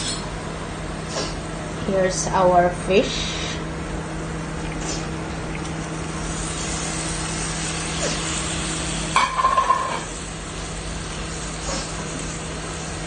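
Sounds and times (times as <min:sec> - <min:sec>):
fish sizzling in frying pan: 0:06.0 - 0:12.6.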